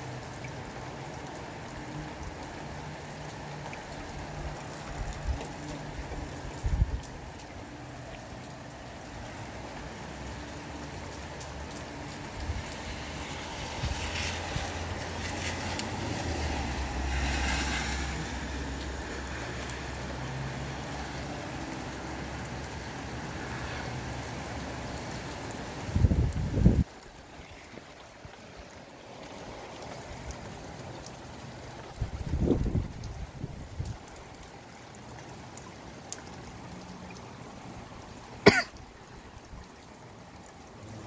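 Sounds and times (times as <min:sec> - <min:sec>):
rain falling: 0:00.0 - 0:41.0
gusty wind rumbling: 0:25.9 - 0:26.9, 0:32.0 - 0:34.0.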